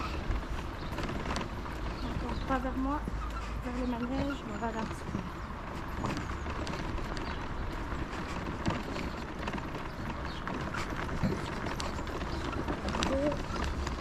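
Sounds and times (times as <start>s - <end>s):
crunching over snow and slush: 0.0s - 14.0s.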